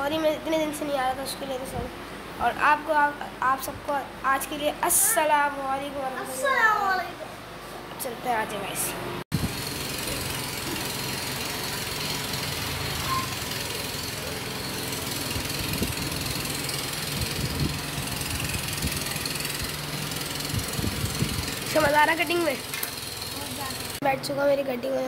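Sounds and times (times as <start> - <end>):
motor running with hum and whine: 8.7 - 24.0.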